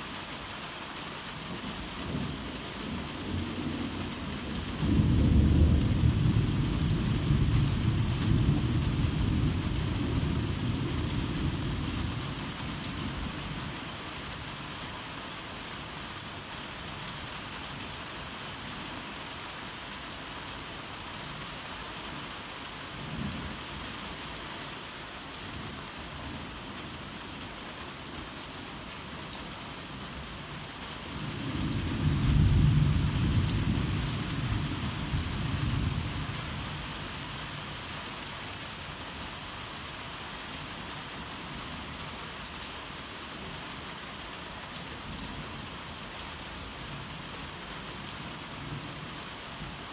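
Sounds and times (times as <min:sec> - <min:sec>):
steady rain: 0:00.0 - 0:49.9
thunder rumble: 0:04.8 - 0:11.6.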